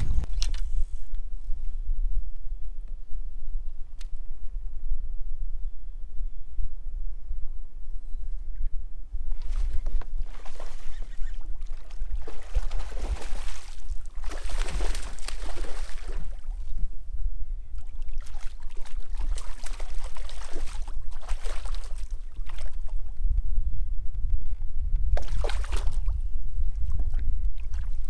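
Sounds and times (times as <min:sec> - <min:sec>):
wind rumble on microphone: 0:00.0 - 0:28.0
fish splashing water: 0:09.4 - 0:16.7, 0:17.8 - 0:22.9, 0:25.2 - 0:26.1.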